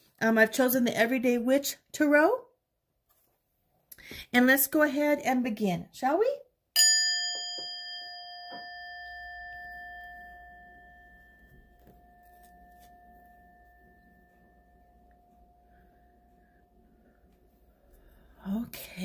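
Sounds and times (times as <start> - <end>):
singing bowl ringing: 6.8 - 17.4.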